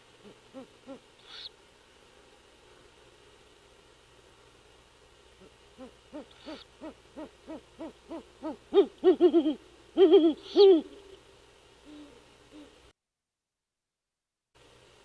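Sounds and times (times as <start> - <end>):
owls hooting: 0.2 - 1.6, 5.4 - 11.1.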